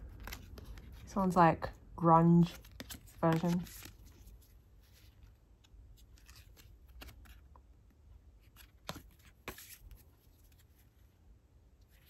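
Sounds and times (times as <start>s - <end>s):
cards being flipped through: 0.0s - 1.1s, 2.4s - 7.6s, 8.4s - 10.8s.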